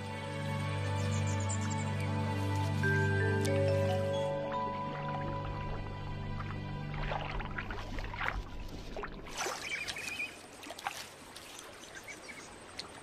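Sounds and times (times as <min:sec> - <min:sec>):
water splashing and dripping: 0:00.0 - 0:13.0
twigs clicking: 0:01.8 - 0:04.1.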